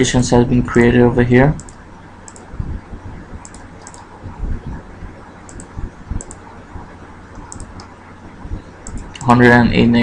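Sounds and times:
steady low hum: 0.0s - 10.0s
mouse buttons clicking: 3.4s - 4.1s, 7.4s - 7.9s.

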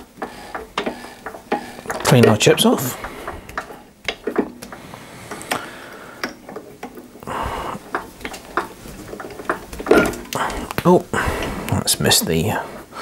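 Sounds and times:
threading die scraping: 0.0s - 5.6s.

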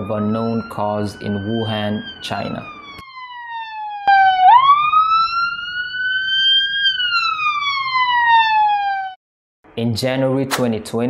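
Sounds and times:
siren wailing: 0.0s - 9.2s.

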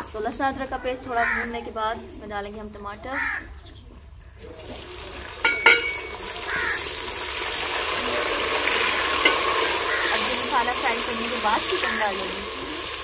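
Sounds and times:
tomatoes sizzling in oil: 4.5s - 13.0s
metal clinks against pot: 5.4s - 6.2s, 9.2s - 9.6s.

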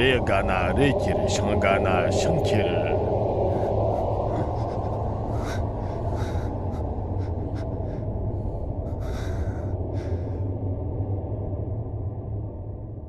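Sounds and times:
steady low rumble: 0.0s - 13.0s
person gasping breaths: 3.4s - 10.5s.

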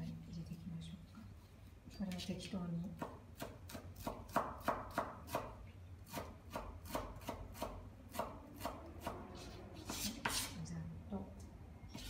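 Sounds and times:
knife chopping on wooden board: 3.0s - 5.5s.

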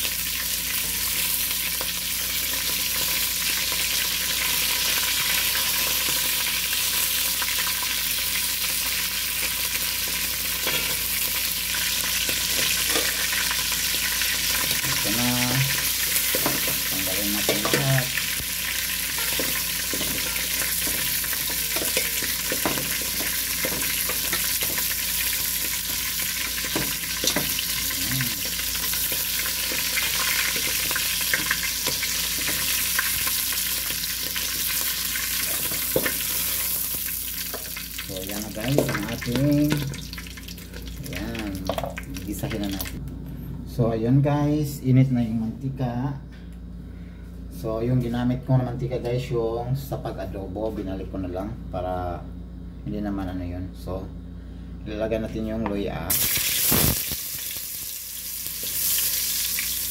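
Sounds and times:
meat sizzling in hot oil: 0.0s - 43.0s, 56.1s - 59.9s.

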